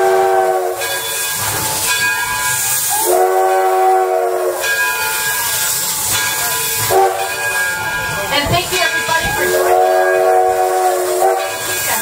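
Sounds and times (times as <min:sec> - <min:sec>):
steam locomotive whistle: 0:00.0 - 0:07.9, 0:08.8 - 0:12.0
steam hissing: 0:00.0 - 0:12.0.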